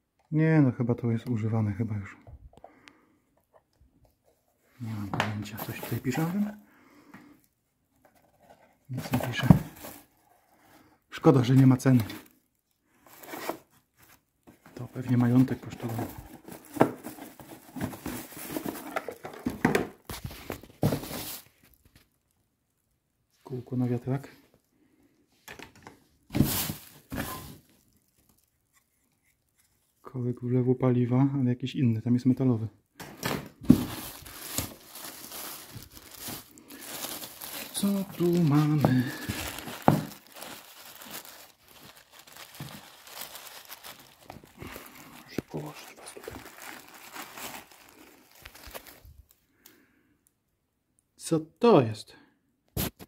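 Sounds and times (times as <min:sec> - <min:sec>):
paper and plastic bags crinkling: 0:05.0 - 0:06.6, 0:08.1 - 0:22.2, 0:26.3 - 0:28.5, 0:33.0 - 0:49.4
plastic bag crinkling: 0:33.7 - 0:49.4.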